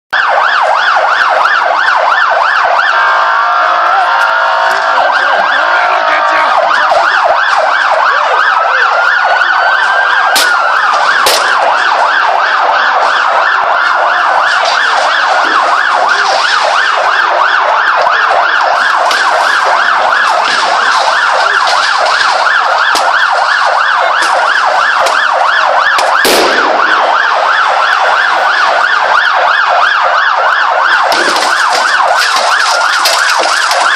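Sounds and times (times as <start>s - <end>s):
siren yelping and wailing: 0.1s - 33.9s
sharp cracks: 9.8s - 12.2s, 18.0s - 27.5s, 30.8s - 33.9s.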